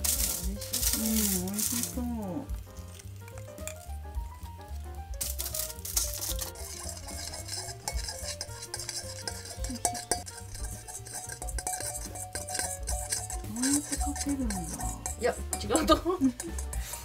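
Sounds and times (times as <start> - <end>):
spoon stirring in a small dish: 5.1 - 17.0.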